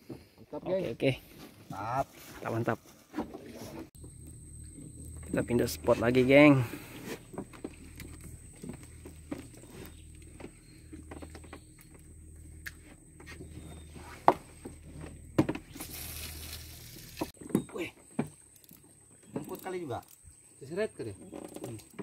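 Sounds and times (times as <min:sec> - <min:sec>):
light knocks and clicks in boat: 0:07.0 - 0:15.7, 0:17.4 - 0:20.2, 0:21.0 - 0:22.0.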